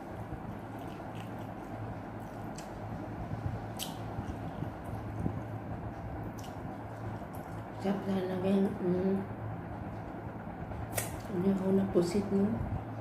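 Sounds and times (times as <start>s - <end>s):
person chewing food: 0.0s - 3.1s
low hum: 0.0s - 13.0s.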